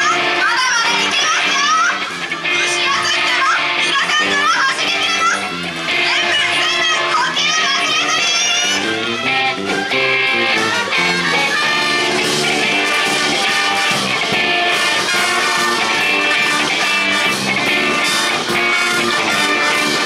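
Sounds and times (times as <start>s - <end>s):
drum kit: 4.9s - 20.0s
brass band playing: 8.8s - 20.0s.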